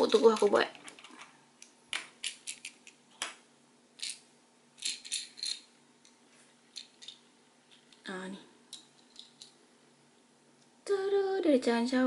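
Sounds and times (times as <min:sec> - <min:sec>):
plastic bricks clicking and rattling: 0:01.9 - 0:03.3.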